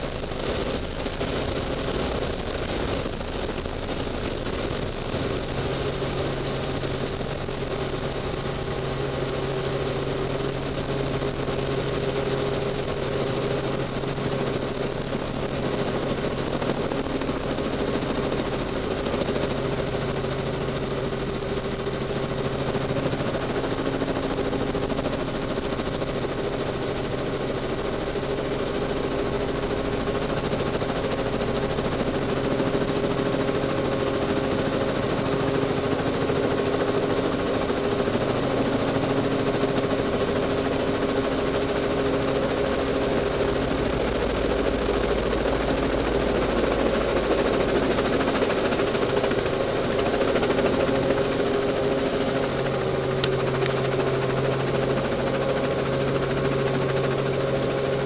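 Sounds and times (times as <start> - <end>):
helicopter engine and rotor drone: 0.0 - 58.0.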